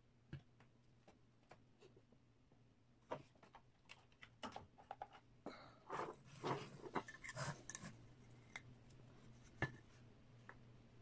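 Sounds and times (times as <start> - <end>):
hands handling plastic parts: 3.0 - 10.6.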